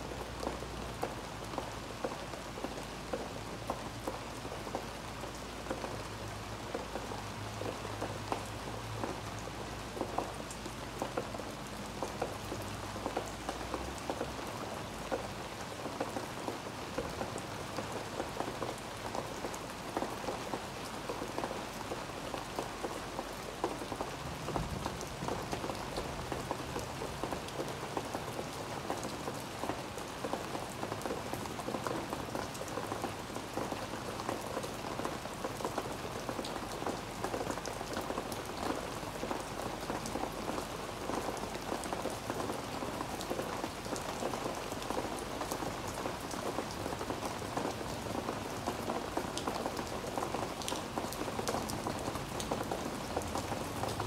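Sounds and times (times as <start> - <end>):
rain on pavers and leaves: 0.0 - 54.0.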